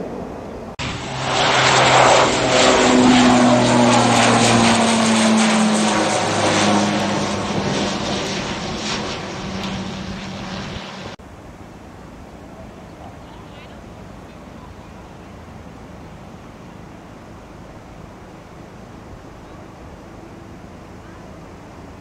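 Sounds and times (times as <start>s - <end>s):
propeller airliner passing overhead: 0.0s - 22.0s.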